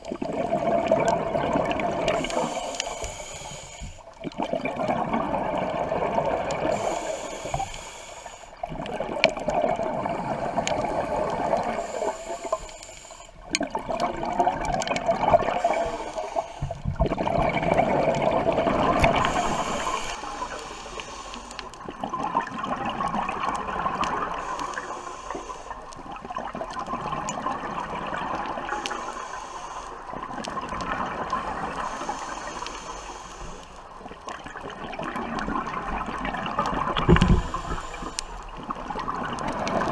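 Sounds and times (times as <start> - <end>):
bubbling exhalations underwater: 0.0 - 2.6, 4.2 - 7.0, 8.7 - 12.0, 13.5 - 16.0, 16.6 - 20.0, 34.4 - 39.9
hissing regulator inhalations: 2.1 - 4.1, 6.6 - 8.6, 10.1 - 13.5, 15.4 - 16.8, 18.7 - 21.8, 24.2 - 26.0, 28.7 - 30.2, 31.3 - 34.1, 37.0 - 38.6.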